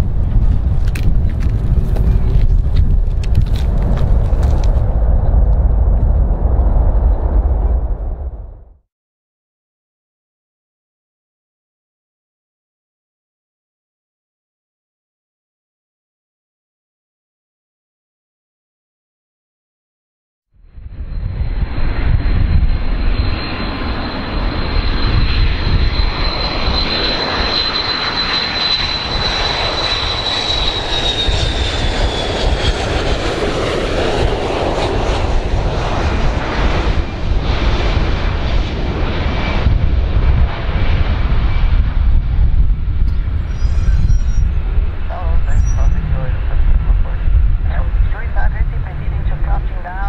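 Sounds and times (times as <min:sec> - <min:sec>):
jet engines roaring and whining: 0:00.0 - 0:08.5, 0:20.7 - 0:50.0.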